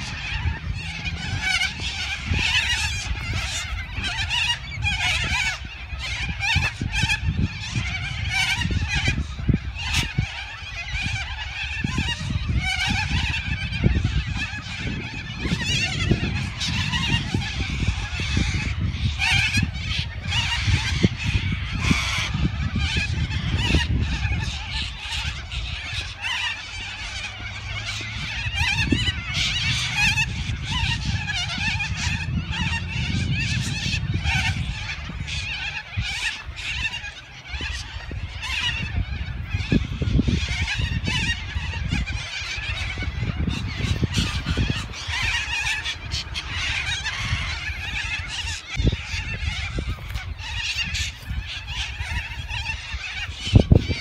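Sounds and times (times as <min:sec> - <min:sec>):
cockatoo flock screeching: 0:00.0 - 0:54.0
wind rumbling on microphone: 0:00.0 - 0:54.0.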